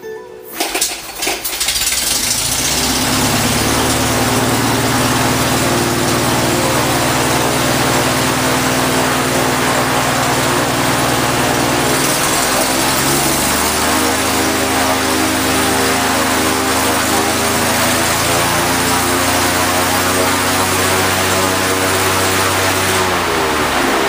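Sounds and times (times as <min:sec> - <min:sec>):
propeller engine running: 0:00.6 - 0:24.0.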